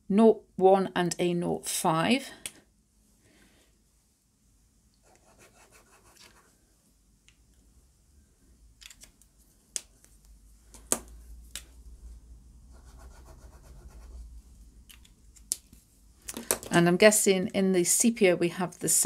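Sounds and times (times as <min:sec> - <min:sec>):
pen scratching on paper: 0:05.0 - 0:06.5, 0:12.7 - 0:14.2.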